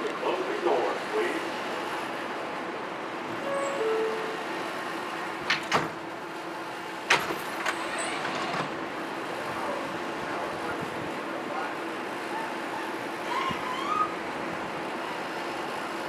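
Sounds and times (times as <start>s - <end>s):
subway train running hum: 0.0s - 16.0s.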